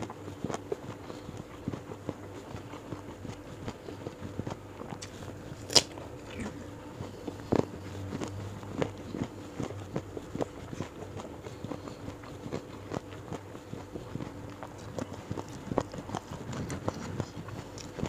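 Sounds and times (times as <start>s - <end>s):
person chewing: 0.1s - 18.0s
crisp crunch of a bite: 5.0s - 6.7s.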